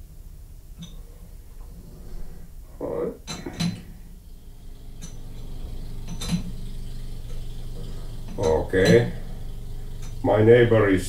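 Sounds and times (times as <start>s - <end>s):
sharp clicks: 3.3s - 10.3s.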